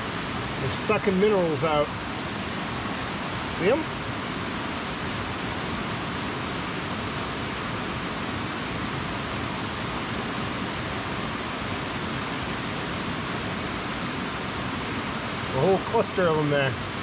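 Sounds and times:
mountain stream rushing: 0:00.0 - 0:17.0.

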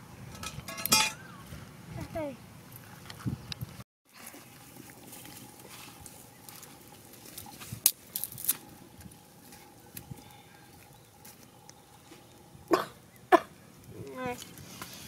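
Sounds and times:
dry grass and twigs rustling: 0:00.3 - 0:15.0
twigs snapping: 0:07.8 - 0:08.7.

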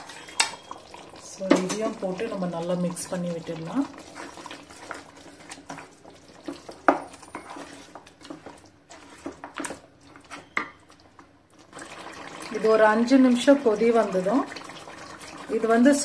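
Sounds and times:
spatula scraping a pan: 0:04.0 - 0:10.6.

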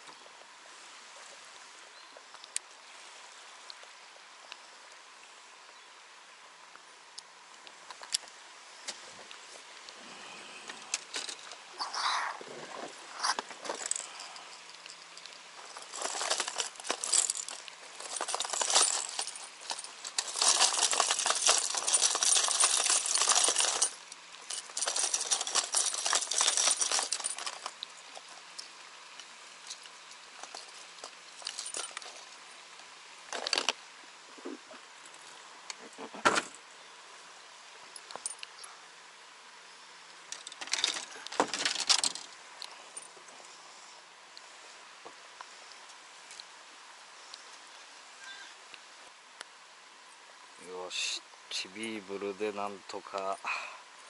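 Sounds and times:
crinkly rustling with clinks: 0:09.4 - 0:33.8, 0:34.4 - 0:36.6, 0:37.9 - 0:38.8, 0:40.3 - 0:44.8.

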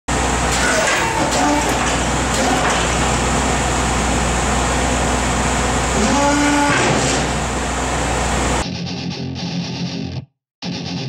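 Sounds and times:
vehicle engine humming: 0:00.1 - 0:08.6.

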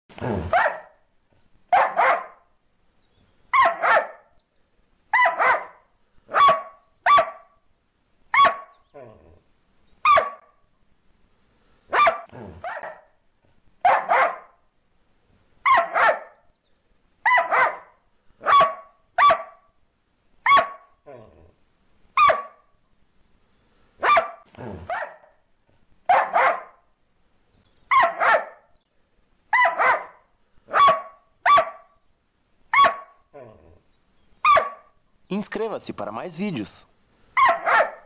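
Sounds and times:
dog barking: 0:00.5 - 0:00.9, 0:01.7 - 0:02.4, 0:03.5 - 0:04.2, 0:05.2 - 0:07.5, 0:08.3 - 0:08.7, 0:10.0 - 0:10.4, 0:11.9 - 0:13.1, 0:13.8 - 0:14.5, 0:15.6 - 0:16.3, 0:17.2 - 0:19.6, 0:20.4 - 0:20.8, 0:22.2 - 0:22.6, 0:24.0 - 0:25.3, 0:26.1 - 0:26.8, 0:27.9 - 0:28.6, 0:29.5 - 0:31.9, 0:32.7 - 0:33.1, 0:34.4 - 0:34.9, 0:37.4 - 0:38.0.

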